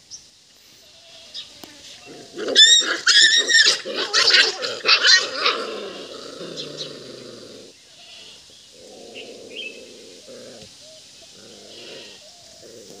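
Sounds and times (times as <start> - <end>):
puppies growling in play: 2.0 - 7.8, 8.7 - 13.0.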